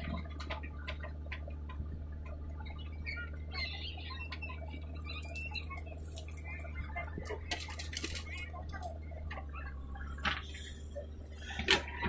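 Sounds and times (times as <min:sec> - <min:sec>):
diesel engine under hydraulic load: 0:00.0 - 0:12.0.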